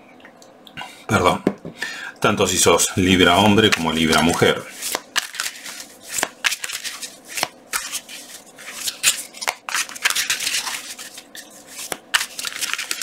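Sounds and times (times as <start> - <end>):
cards being shuffled: 3.6 - 13.0.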